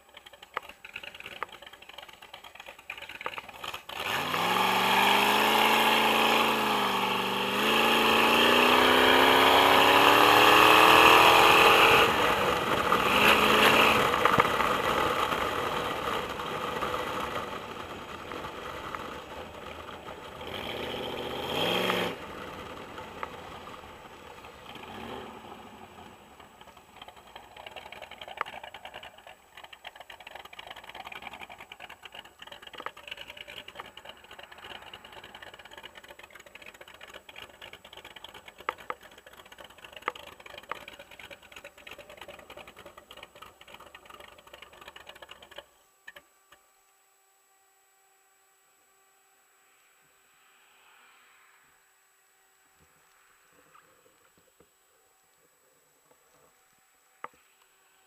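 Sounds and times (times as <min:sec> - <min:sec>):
motorcycle engine accelerating: 0:00.0 - 0:46.2.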